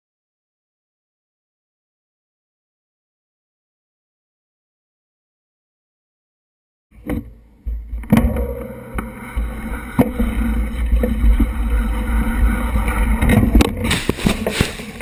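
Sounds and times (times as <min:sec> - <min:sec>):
bike knocking and rattling: 0:07.0 - 0:15.0.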